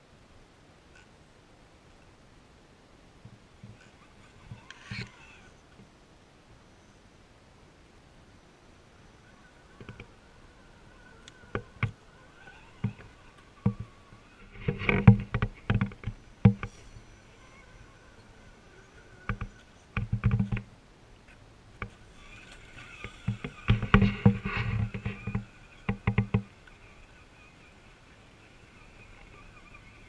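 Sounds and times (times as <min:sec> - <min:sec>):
electric motor and gear whine: 0:03.2 - 0:05.9, 0:08.8 - 0:30.0.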